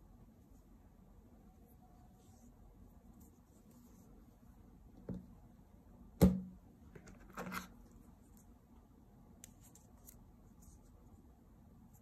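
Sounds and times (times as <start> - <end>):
sharp knock on box: 6.2 - 6.5.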